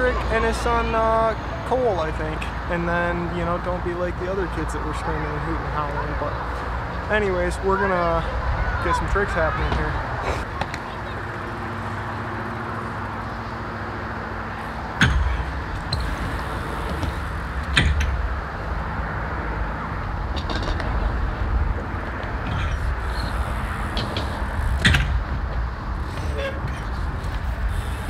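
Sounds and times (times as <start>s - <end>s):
bike knocking on concrete: 15.0s - 18.4s, 21.8s - 26.9s.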